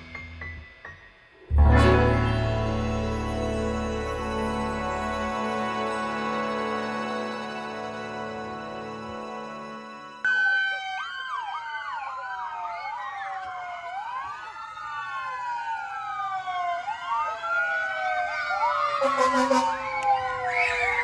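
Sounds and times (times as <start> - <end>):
background music: 0.0 - 10.7
police sirens wailing: 1.5 - 21.0.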